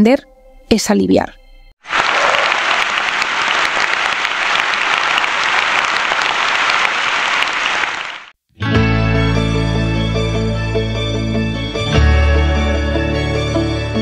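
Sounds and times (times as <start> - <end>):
audience clapping: 1.8 - 8.4.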